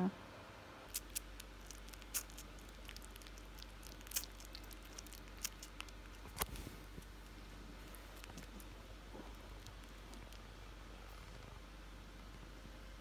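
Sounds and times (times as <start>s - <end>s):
kittens suckling wet clicks: 0.9s - 10.5s.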